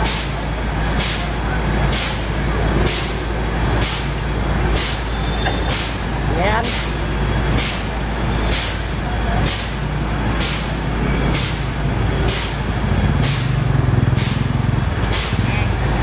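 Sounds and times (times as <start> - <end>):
fire engine running: 0.0 - 16.0
hissing air bursts: 3.8 - 7.0, 7.6 - 11.7, 13.2 - 15.5.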